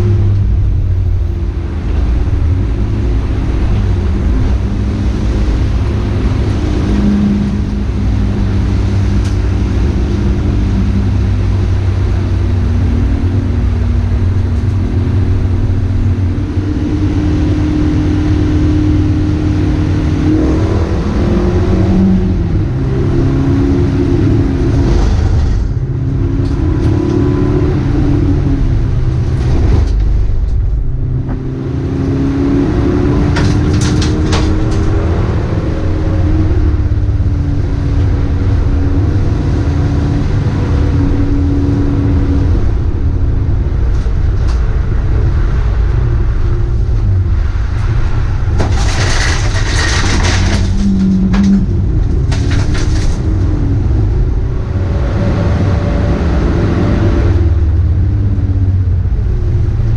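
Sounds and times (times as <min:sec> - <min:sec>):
race car engine accelerating: 0:00.0 - 0:59.9
road and tyre noise: 0:00.0 - 0:59.9.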